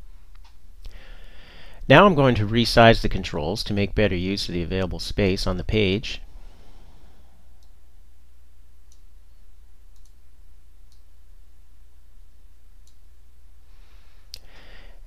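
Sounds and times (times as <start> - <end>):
low electrical hum: 0.0 - 15.0
computer mouse clicks: 10.0 - 10.2.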